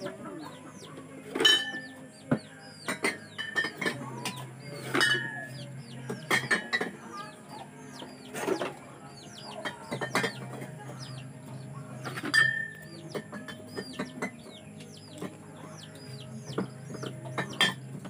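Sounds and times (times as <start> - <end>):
chickens clucking and cheeping: 0.0 - 18.0
glass bottles clinking: 2.9 - 4.0, 4.9 - 5.4, 6.3 - 6.9, 9.6 - 10.4, 17.4 - 17.8.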